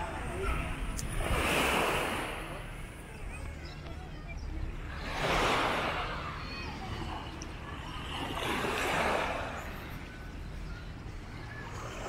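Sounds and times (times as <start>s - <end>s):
small waves washing onto sand: 0.0s - 2.9s, 4.8s - 10.1s.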